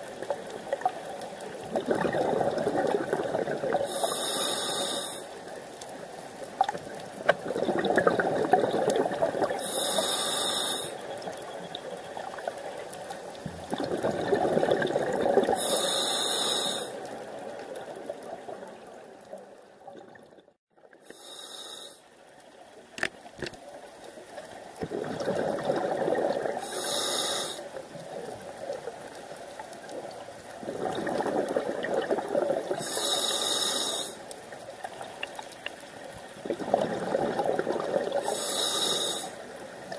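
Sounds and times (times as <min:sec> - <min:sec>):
exhaled bubbles rushing: 0:01.6 - 0:04.0, 0:06.7 - 0:09.6, 0:13.4 - 0:15.7, 0:24.8 - 0:26.8, 0:30.6 - 0:32.8, 0:36.3 - 0:38.4
regulator inhale hiss: 0:03.8 - 0:05.4, 0:09.6 - 0:11.0, 0:15.5 - 0:17.1, 0:21.0 - 0:22.1, 0:26.6 - 0:27.8, 0:32.8 - 0:34.3, 0:38.2 - 0:39.4.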